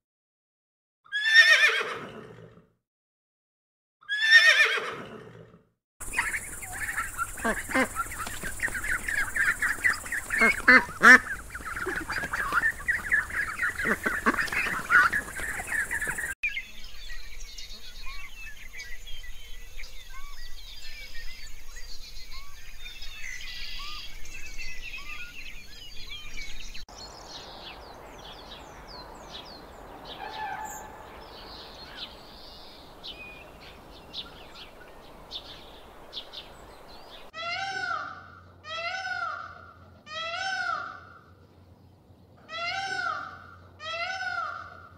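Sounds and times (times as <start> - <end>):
ducks calling loudly: 6.0 - 16.4, 27.4 - 41.3, 42.4 - 44.9
small birds chirping busily: 6.0 - 44.9.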